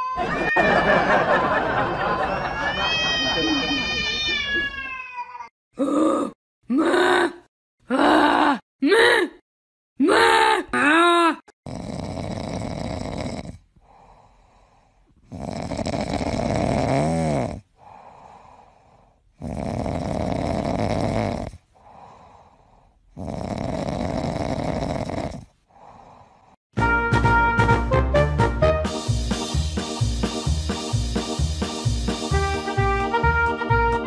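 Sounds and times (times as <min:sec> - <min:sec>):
cat purring: 0:15.2 - 0:17.6, 0:23.1 - 0:25.5.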